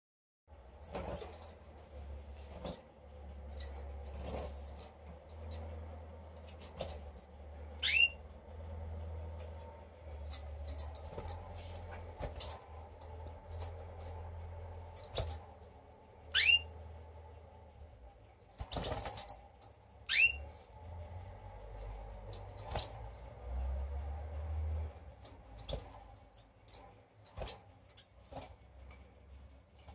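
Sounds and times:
birds hopping in wire cages: 0.5 - 29.9
wing flutters: 0.8 - 8.0, 18.5 - 20.7
short high falling bird calls: 7.8 - 8.2, 16.3 - 16.7.

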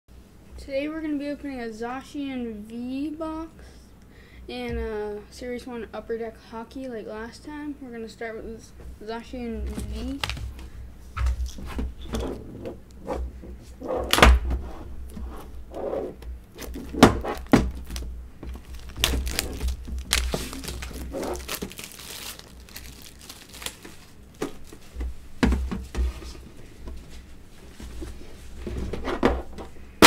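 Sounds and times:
plastic wrapping crinkling and tearing: 9.7 - 10.6, 16.5 - 24.8.

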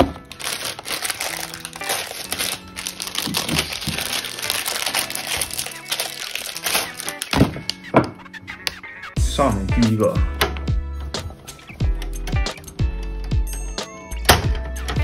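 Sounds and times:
crinkling and rustling: 0.0 - 8.2
quiet background music: 0.0 - 15.0.

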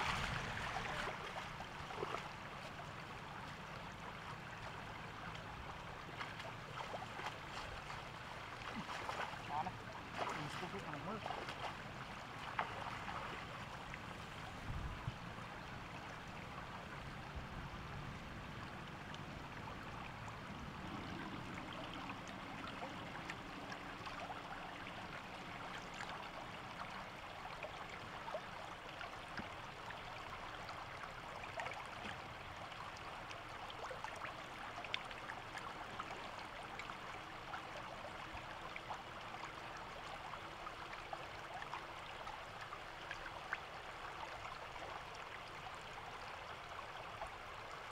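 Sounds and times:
shallow water running: 5.4 - 14.4.

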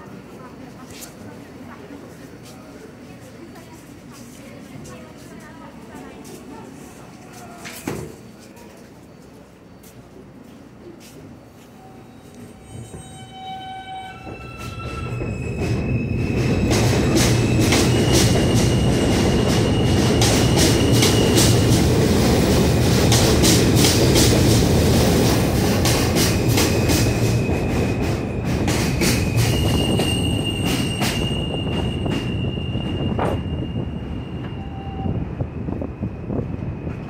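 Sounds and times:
train wheel-and-rail noise: 0.0 - 37.0
high wheel squeal: 12.0 - 21.6, 29.1 - 35.2.

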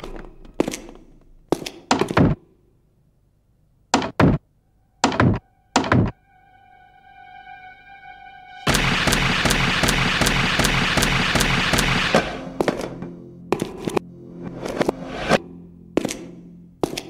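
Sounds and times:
sustained musical note: 4.6 - 10.6, 11.9 - 16.9.

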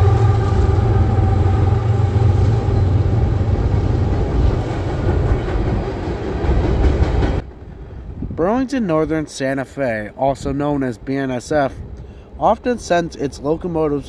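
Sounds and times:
diesel locomotive droning: 0.0 - 8.3
freight train rumbling over bridge: 0.0 - 14.0.

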